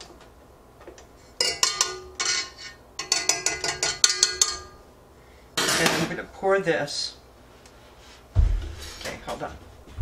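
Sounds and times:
whisk clinking against metal bowl: 1.4 - 4.8.

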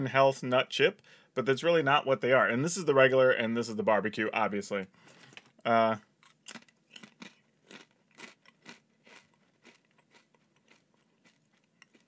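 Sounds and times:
person chewing crunchy chip: 6.2 - 12.0.

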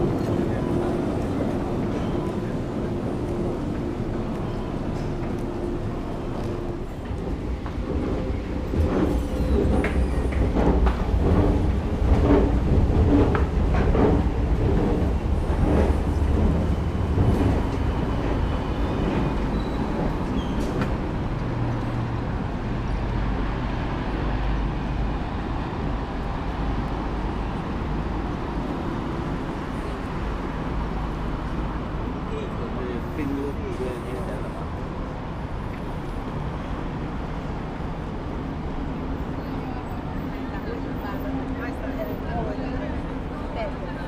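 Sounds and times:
traffic rumble: 0.0 - 44.0.

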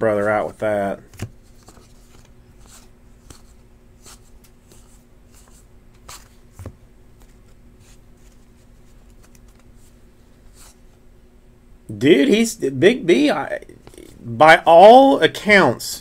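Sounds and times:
faint steady hum: 0.0 - 16.0
trading cards sliding and flicking: 1.1 - 10.8.

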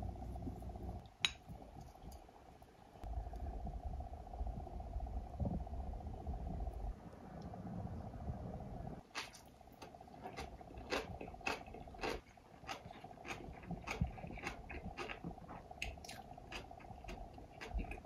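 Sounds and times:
faint steady hum: 0.0 - 18.0
person chewing crunchy food: 9.1 - 18.0.

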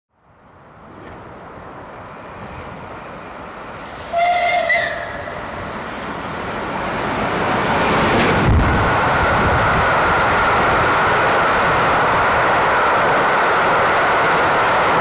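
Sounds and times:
loud rush of passing train: 0.2 - 15.0
steam locomotive approaching: 0.5 - 15.0
steam train whistle: 4.0 - 5.4.

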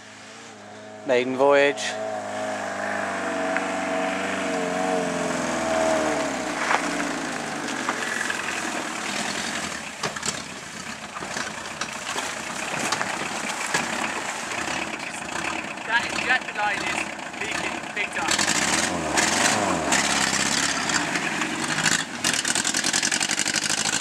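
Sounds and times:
diesel engine running: 0.0 - 24.0
tyres crunching over stones: 5.9 - 15.5.

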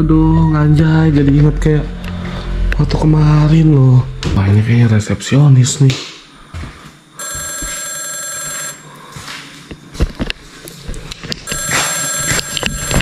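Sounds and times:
telephone ringing: 7.2 - 8.9, 11.5 - 13.0.

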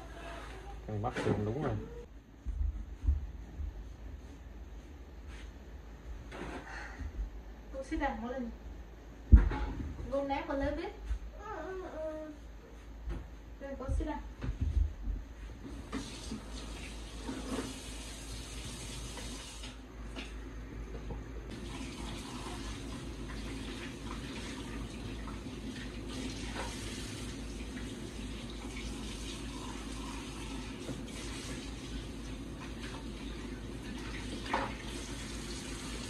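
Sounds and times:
water running from a tap: 15.8 - 19.8, 21.5 - 36.0.

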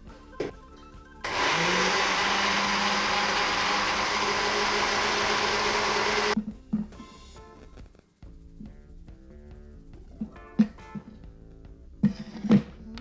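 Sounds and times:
blender motor running: 1.2 - 6.4.

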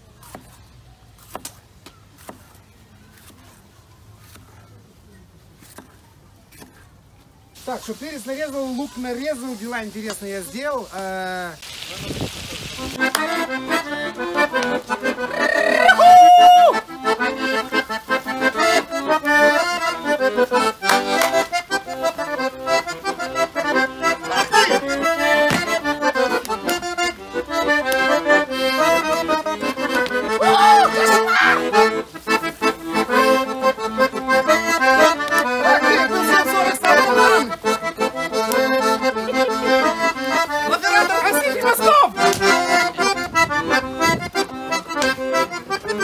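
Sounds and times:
accordion playing dance tune: 12.8 - 46.0.

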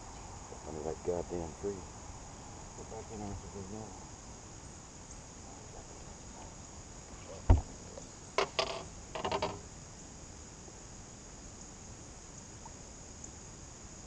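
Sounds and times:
high insect buzzing: 0.0 - 10.1
loud thump on boat deck: 7.4 - 7.7.

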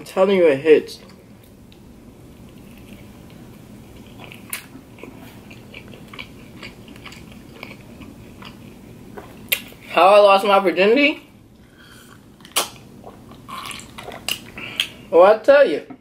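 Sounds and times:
person chewing: 1.0 - 9.9, 11.5 - 15.1
wet mouth clicks and smacks: 12.4 - 15.0.

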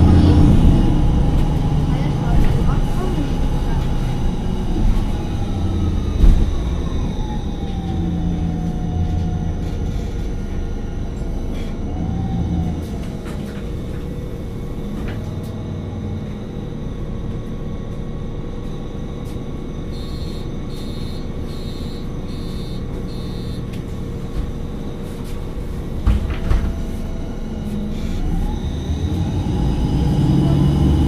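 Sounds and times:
bus engine idling: 0.0 - 31.0
short high beeps: 20.0 - 23.6
bus doors thumping shut: 26.0 - 27.0.

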